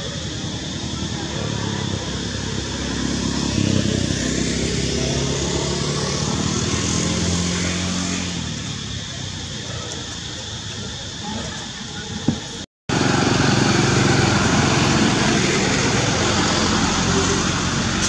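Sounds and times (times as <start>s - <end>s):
vehicle engine passing by: 0.6s - 9.9s, 12.9s - 18.0s.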